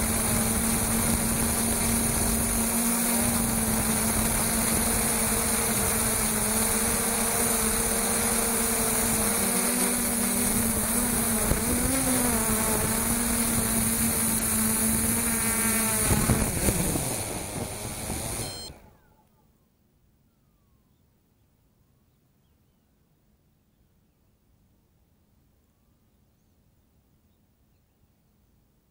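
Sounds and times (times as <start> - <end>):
drone propellers buzzing: 0.0 - 19.2.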